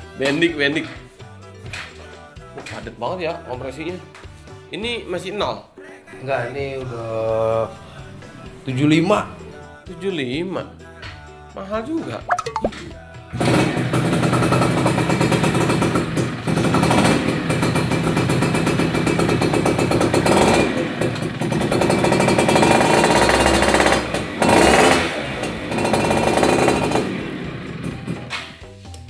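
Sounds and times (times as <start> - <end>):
two-stroke engine revving: 13.4 - 28.2.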